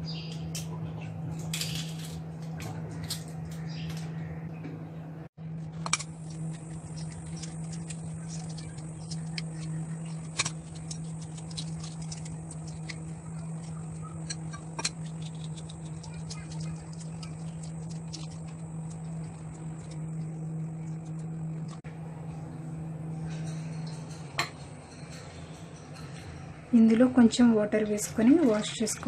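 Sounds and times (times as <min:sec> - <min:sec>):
steady low hum: 0:00.0 - 0:29.0
eggshells crackling as peeled: 0:05.7 - 0:21.8.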